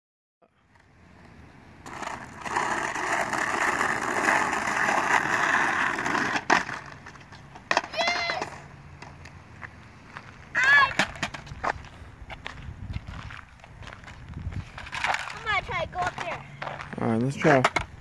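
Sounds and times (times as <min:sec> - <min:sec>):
skateboard wheels rolling on asphalt: 0:00.6 - 0:18.0
skateboard hitting curb: 0:01.8 - 0:09.2, 0:10.5 - 0:11.8, 0:14.8 - 0:16.8, 0:17.4 - 0:18.0.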